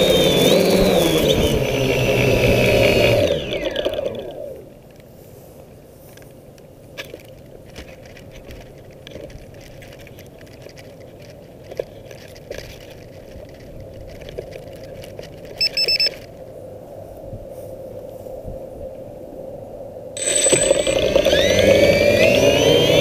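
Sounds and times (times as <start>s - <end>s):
wind rumbling on microphone: 16.4s - 20.2s
high electronic beeps: 20.2s - 21.6s.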